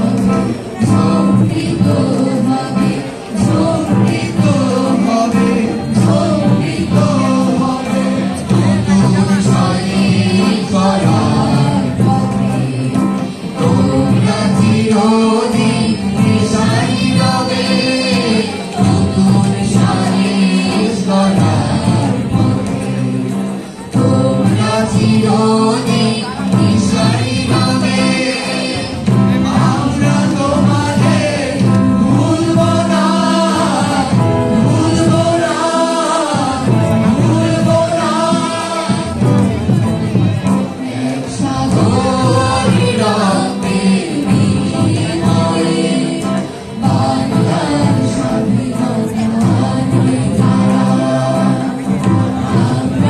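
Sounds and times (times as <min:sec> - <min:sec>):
acoustic guitar: 0:00.0 - 0:53.0
hand drums: 0:00.0 - 0:53.0
mixed chorus singing: 0:00.0 - 0:53.0.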